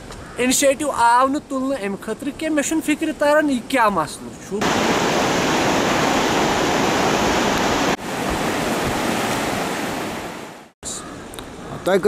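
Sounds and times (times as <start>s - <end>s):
river water rushing: 4.6s - 10.7s.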